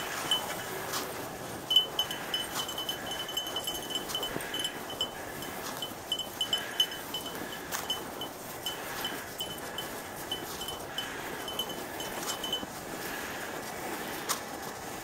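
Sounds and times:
dog collar jingling: 0.0 - 0.7, 1.6 - 12.7.

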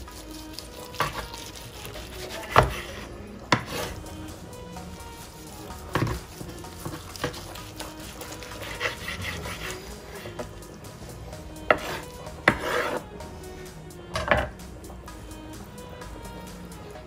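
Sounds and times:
knife slicing through roast: 0.4 - 4.0, 5.9 - 10.4, 11.7 - 13.1.

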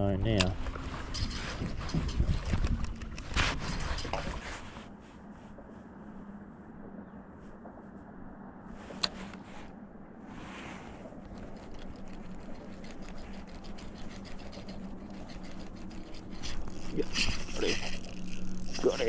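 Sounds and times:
fishing reel ticking: 11.4 - 19.0
electric motor humming: 11.9 - 19.0.

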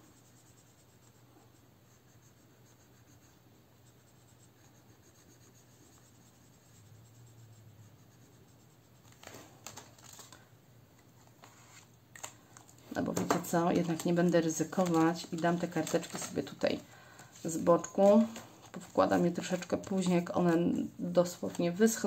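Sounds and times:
marker pen scratching on paper: 0.0 - 9.4, 13.0 - 16.8, 17.4 - 22.0
binder page clicks and rustles: 9.1 - 10.4.

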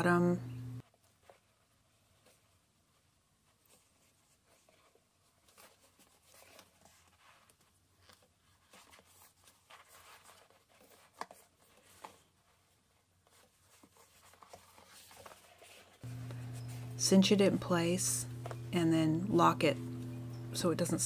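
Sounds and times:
cord handling rustle: 0.8 - 16.9.

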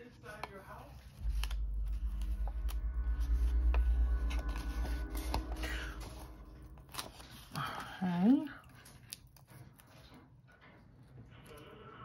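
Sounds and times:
deep low rumble: 0.8 - 8.8.

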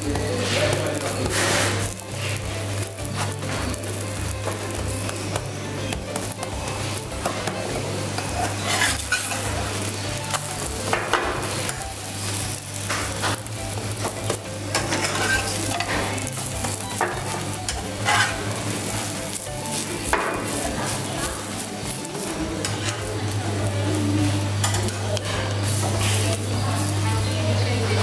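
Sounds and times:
food sizzling in a pan: 0.0 - 28.0
utensil scraping and knocking pan: 18.0 - 18.4.

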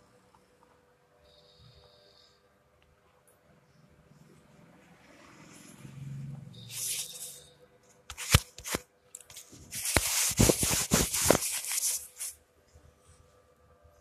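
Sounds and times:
fingers rubbing on phone: 6.7 - 7.4, 9.6 - 12.4.

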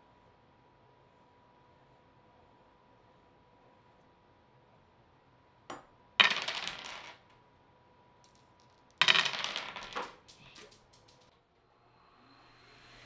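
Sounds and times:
dice rattling in wooden tower: 6.2 - 7.3, 8.2 - 11.4.

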